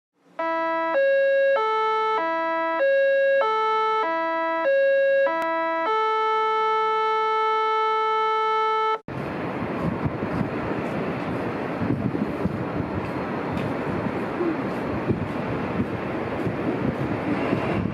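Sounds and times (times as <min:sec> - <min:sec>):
electronic jingle: 0:00.4 - 0:09.0.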